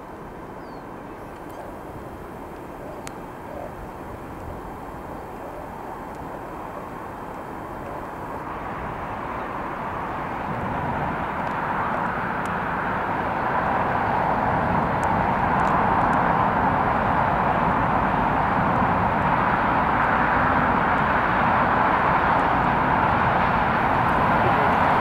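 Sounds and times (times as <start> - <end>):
wind buffeting microphone: 0.8 - 25.0
steam locomotive working hard: 23.3 - 25.0.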